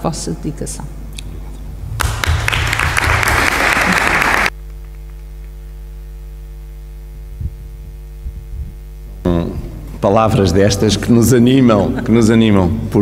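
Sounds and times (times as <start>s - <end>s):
electrical hum: 0.0s - 13.0s
audience applauding: 1.9s - 4.6s.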